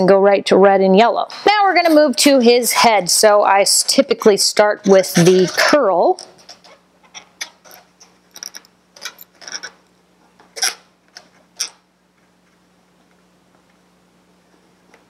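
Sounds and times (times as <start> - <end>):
marker squeaking on balloon: 10.6 - 10.9.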